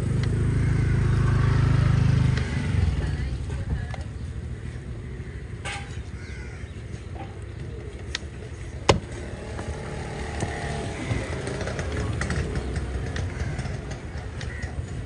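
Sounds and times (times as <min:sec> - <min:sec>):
crow cawing: 0:00.4 - 0:01.7, 0:04.6 - 0:06.8, 0:13.2 - 0:15.0.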